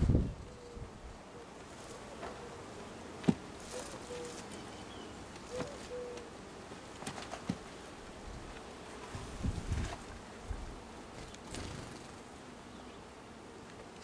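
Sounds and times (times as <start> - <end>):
honeybees buzzing: 0.0 - 14.0
hive frames clicking and knocking: 3.2 - 4.6, 5.3 - 7.8.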